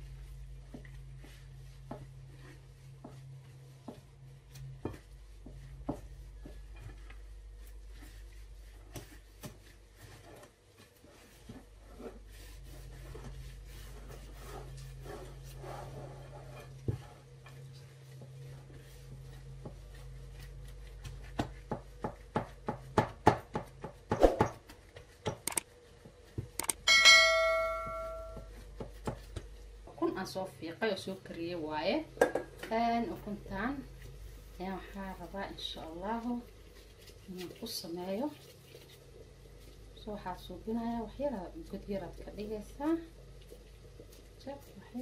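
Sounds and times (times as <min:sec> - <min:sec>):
hand kneading dough in bowl: 0:00.0 - 0:45.0
bell-like notification chime: 0:26.9 - 0:28.4.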